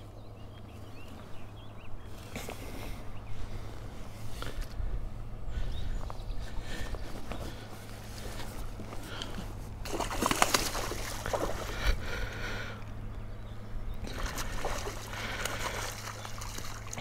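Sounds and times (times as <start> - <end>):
water splashing and sloshing: 6.7 - 12.8, 14.0 - 17.0
fish thrashing at the surface: 9.8 - 12.1, 14.0 - 17.0.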